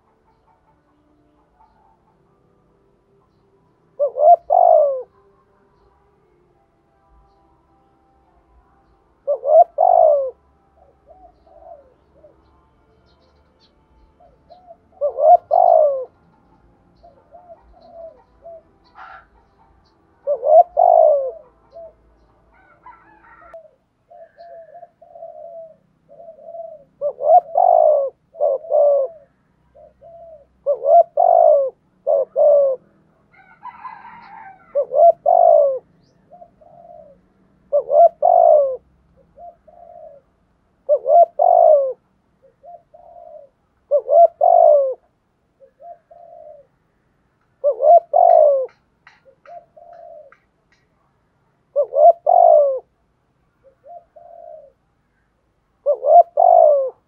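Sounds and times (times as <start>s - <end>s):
dove cooing: 0.0s - 6.0s, 8.4s - 46.9s, 47.5s - 50.9s, 51.6s - 57.0s.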